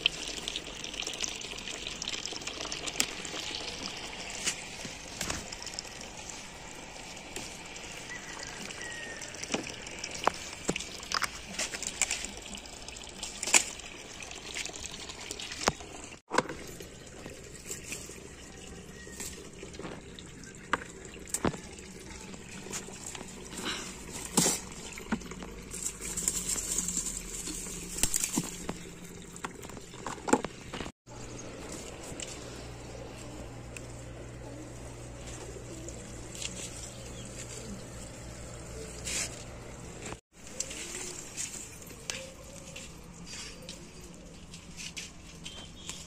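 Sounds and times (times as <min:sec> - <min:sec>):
leaves rustling: 0:25.6 - 0:29.0, 0:31.2 - 0:46.0.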